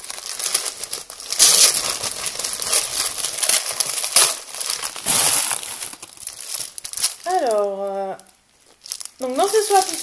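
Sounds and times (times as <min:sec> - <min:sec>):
wrapping paper crinkling: 0:00.0 - 0:10.0.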